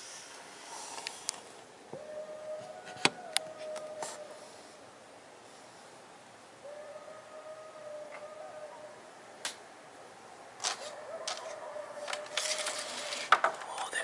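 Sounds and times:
coyote howling: 0:01.9 - 0:04.8, 0:06.6 - 0:09.2, 0:10.8 - 0:13.3.

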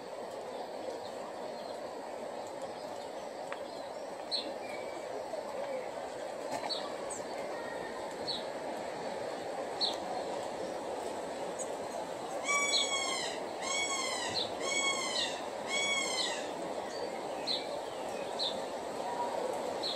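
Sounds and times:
steady background hiss: 0:00.0 - 0:19.9
small birds chirping: 0:09.8 - 0:19.9
parrot calling: 0:12.4 - 0:16.6.

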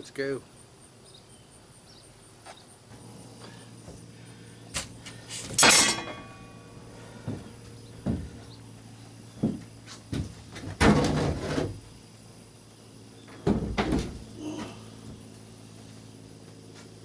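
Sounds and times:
footsteps and thumps in boat hull: 0:07.1 - 0:08.6, 0:09.3 - 0:11.8, 0:13.3 - 0:15.2.

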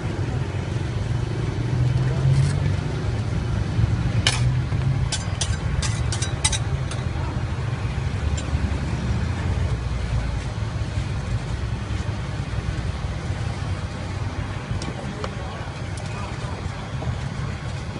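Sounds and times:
steady low rumble: 0:00.0 - 0:17.9
metal spatulas tapping on pan: 0:04.3 - 0:07.1.

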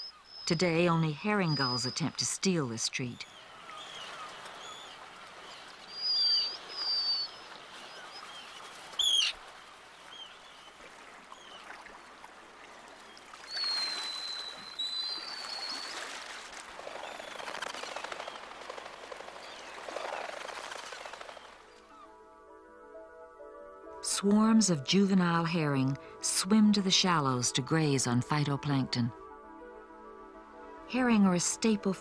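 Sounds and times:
seabirds whistling calls: 0:00.0 - 0:11.7, 0:13.1 - 0:16.2, 0:16.8 - 0:22.1
sea water washing: 0:03.4 - 0:21.7.

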